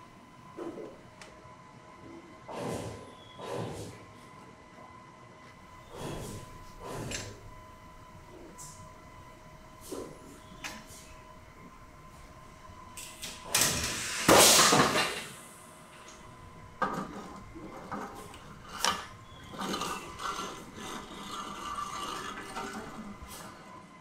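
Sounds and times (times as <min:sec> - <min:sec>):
loud noisy burst: 0:13.4 - 0:15.3.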